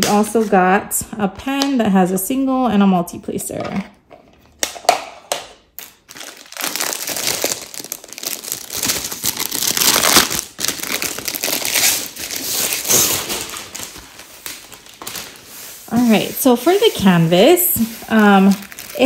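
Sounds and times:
packaging crinkling and rustling: 5.7s - 19.0s.

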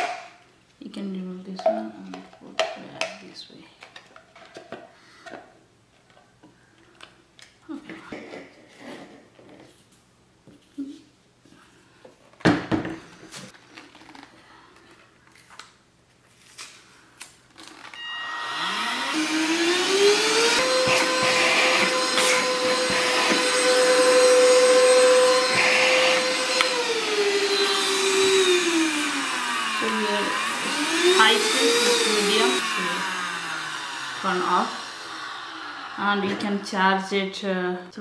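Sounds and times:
handheld vacuum motor whine: 17.8s - 36.7s.

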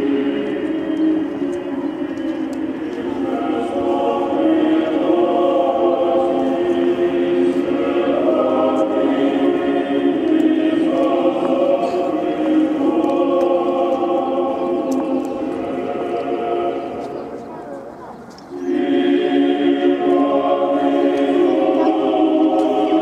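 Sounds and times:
choir singing chant: 0.0s - 17.8s, 18.5s - 23.0s.

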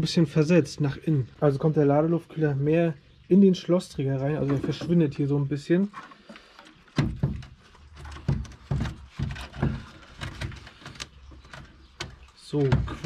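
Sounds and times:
knocks and clunks of car parts: 6.9s - 13.0s.

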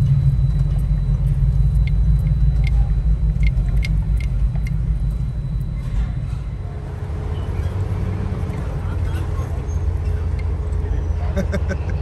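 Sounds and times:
light ticks: 0.0s - 5.7s, 10.3s - 10.8s
car engine rumble: 0.0s - 12.0s
road noise: 0.0s - 12.0s.

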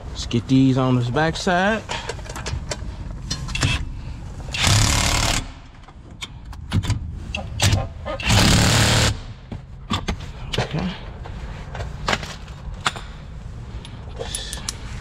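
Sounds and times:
tool handling clicks and clatter: 13.8s - 14.9s.

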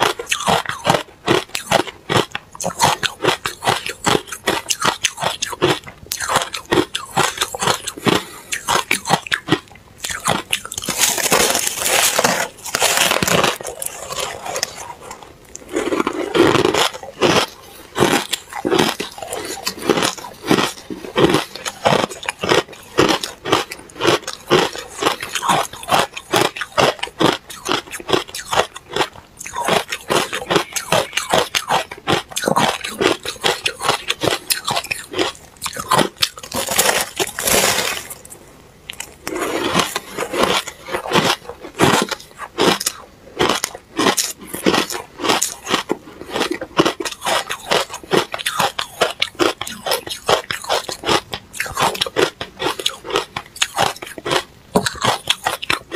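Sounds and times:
ice being chewed: 0.0s - 55.9s.

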